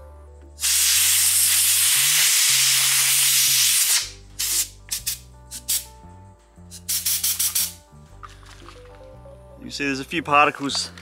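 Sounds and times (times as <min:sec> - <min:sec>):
air blow gun hissing: 0:00.6 - 0:05.9, 0:06.7 - 0:07.8.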